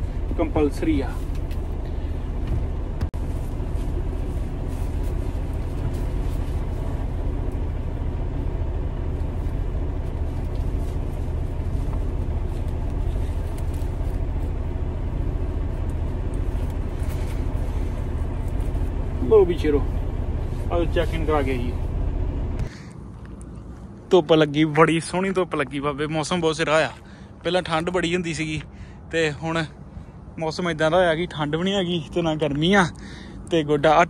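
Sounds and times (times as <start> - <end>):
vest rustling: 0.0 - 24.0
diesel engine idling: 0.0 - 34.0.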